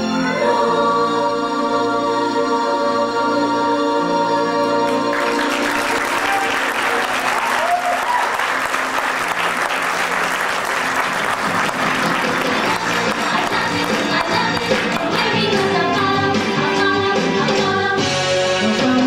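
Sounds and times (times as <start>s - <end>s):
choir singing held chord: 0.0s - 7.4s, 11.1s - 18.0s
audience applauding: 4.9s - 15.7s.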